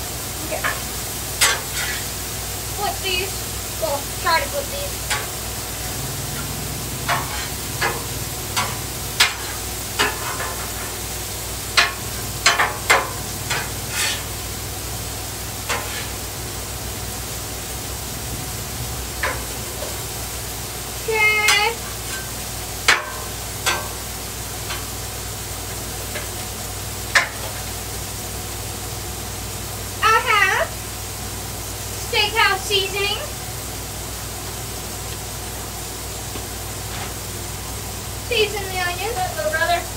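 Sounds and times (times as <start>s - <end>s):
meat and onions sizzling on griddle: 0.0s - 39.9s
metal spatula scraping griddle: 0.6s - 2.2s, 4.4s - 14.6s, 15.6s - 16.4s, 21.4s - 24.0s.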